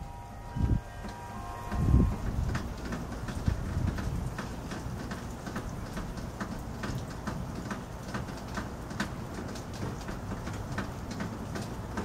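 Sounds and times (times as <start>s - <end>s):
low city rumble: 0.0s - 12.0s.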